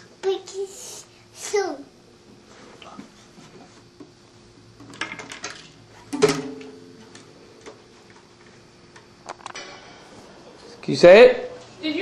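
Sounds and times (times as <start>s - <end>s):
guitar strings ringing: 6.1s - 7.3s
guitar being handled: 6.1s - 7.8s.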